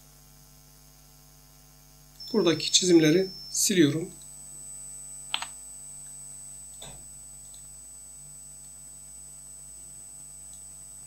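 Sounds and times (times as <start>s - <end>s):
electrical mains hum: 0.0s - 11.0s
faint high-pitched whine: 0.1s - 11.0s
computer key clicks: 5.3s - 5.5s.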